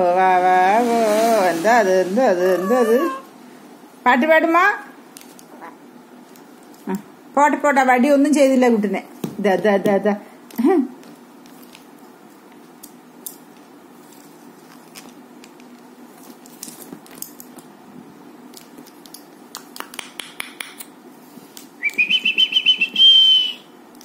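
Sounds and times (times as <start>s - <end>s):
parrot whistled call: 21.8s - 23.8s.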